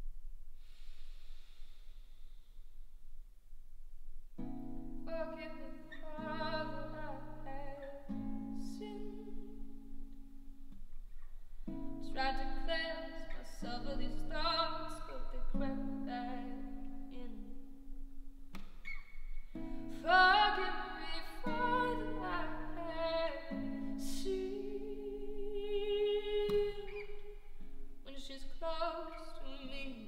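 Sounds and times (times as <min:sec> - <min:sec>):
woman singing: 0:05.1 - 0:09.6, 0:12.0 - 0:17.6, 0:19.9 - 0:27.3, 0:28.1 - 0:30.0.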